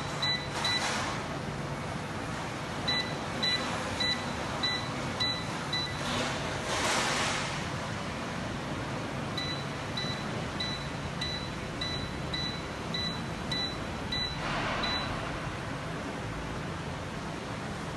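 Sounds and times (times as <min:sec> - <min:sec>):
short high beeps: 0:09.4 - 0:15.2.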